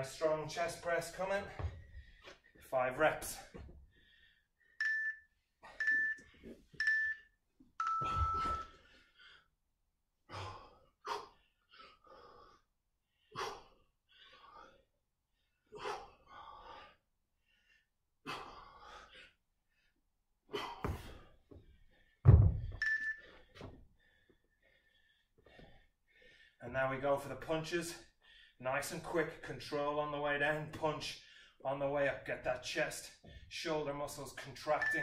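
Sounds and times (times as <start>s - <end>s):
heavy thunk: 22.3s - 22.8s.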